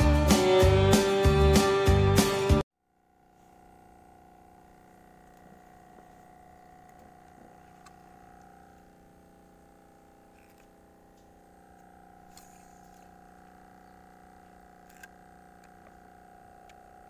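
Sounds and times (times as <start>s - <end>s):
faint steady hum: 2.8s - 17.0s
faint clicks: 16.6s - 16.9s.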